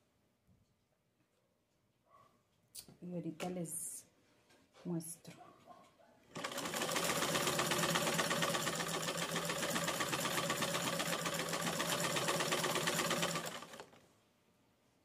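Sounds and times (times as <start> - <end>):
electric sewing machine running: 6.3 - 14.0.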